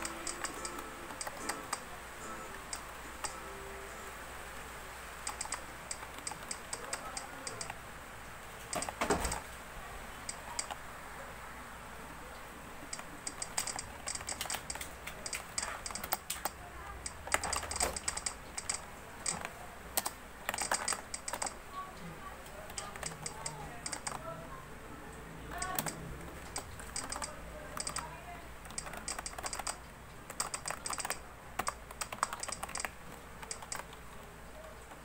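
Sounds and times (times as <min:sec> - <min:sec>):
soft keyboard key presses: 0:00.0 - 0:01.9, 0:05.2 - 0:07.8, 0:08.6 - 0:09.5, 0:10.2 - 0:10.8, 0:12.9 - 0:21.9, 0:22.5 - 0:24.3, 0:25.5 - 0:35.0.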